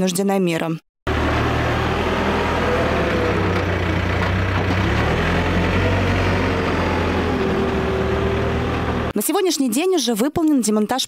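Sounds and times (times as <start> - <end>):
diesel engine running: 1.1 - 9.2.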